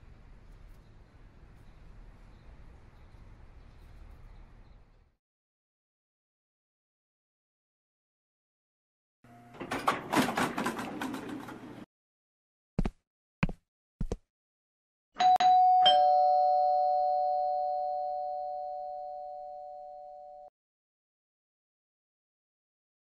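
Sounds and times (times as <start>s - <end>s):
clattering noise: 9.6s - 11.8s
two-tone doorbell chime: 15.2s - 20.5s.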